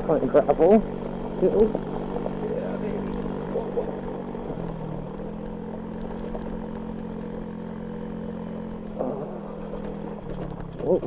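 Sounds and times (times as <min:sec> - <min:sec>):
scooter engine running: 0:00.0 - 0:11.0.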